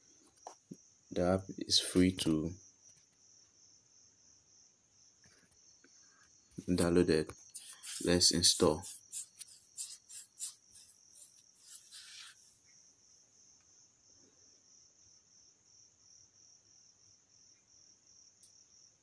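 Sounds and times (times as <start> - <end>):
cricket chirping: 0.0 - 19.0
faint scratchy rustling: 6.6 - 12.6.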